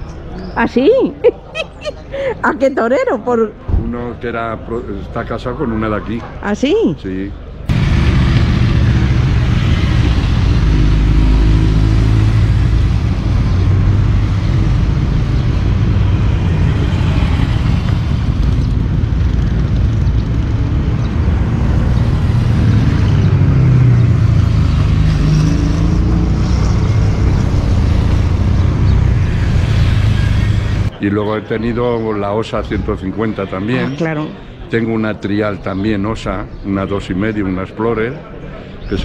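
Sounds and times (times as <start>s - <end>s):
motorcycles riding past: 7.7s - 30.9s.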